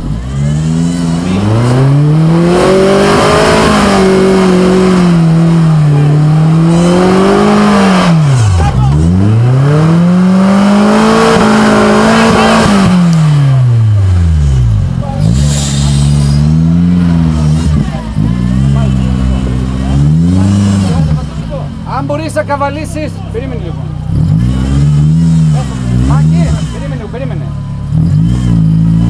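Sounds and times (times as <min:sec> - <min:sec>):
off-road vehicle engine revving: 0:00.0 - 0:29.0.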